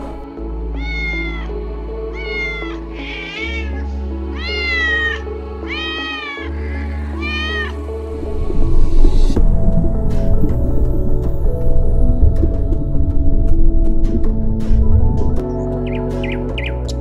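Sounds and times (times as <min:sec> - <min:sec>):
background music with low notes: 0:00.0 - 0:17.0
cat meowing: 0:00.8 - 0:07.8.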